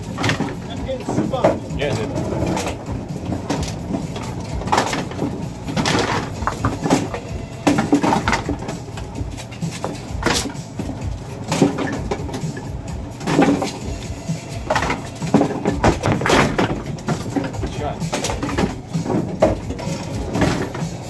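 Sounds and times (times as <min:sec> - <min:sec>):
machine rumble: 0:00.0 - 0:21.0
pinsetter clanks and knocks: 0:00.0 - 0:21.0.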